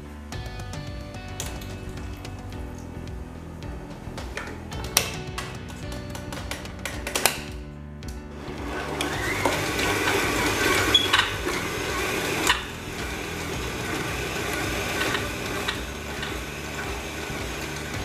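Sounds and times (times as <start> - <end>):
electric mixer running: 8.4 - 18.0
mixer knocking against bowl: 9.1 - 18.0.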